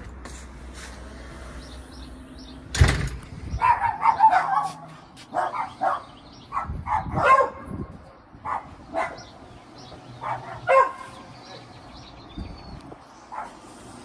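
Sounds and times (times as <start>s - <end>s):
dog barking: 3.6s - 7.7s, 8.4s - 9.3s, 10.2s - 11.7s, 13.3s - 13.6s.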